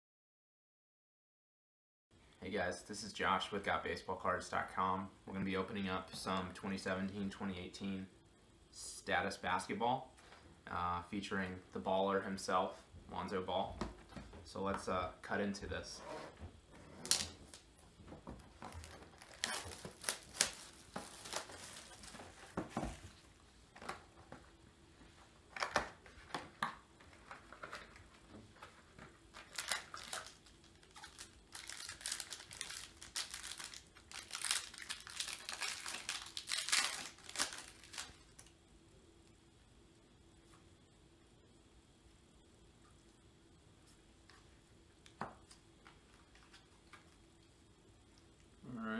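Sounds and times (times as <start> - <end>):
plastic wrap crinkling and tearing: 17.0 - 17.6, 18.5 - 23.2, 29.3 - 38.5.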